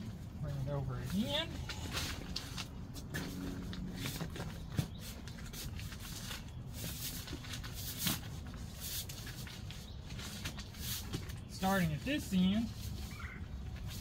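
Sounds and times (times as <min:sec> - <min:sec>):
plastic rustling and crinkling: 0:01.4 - 0:14.0.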